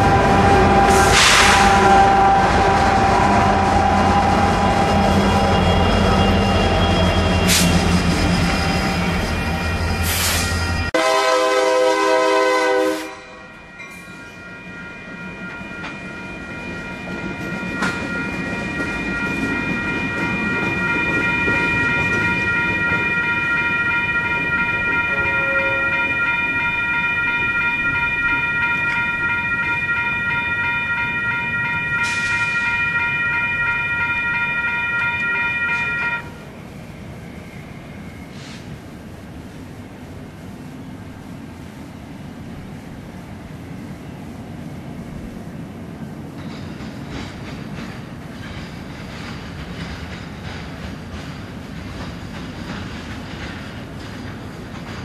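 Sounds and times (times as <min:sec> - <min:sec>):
locomotive horn: 0:00.0 - 0:07.7, 0:10.0 - 0:13.6, 0:23.4 - 0:26.7, 0:32.0 - 0:36.4
train engine and wheel rumble: 0:00.0 - 0:55.0
level crossing bell ringing: 0:13.8 - 0:36.2.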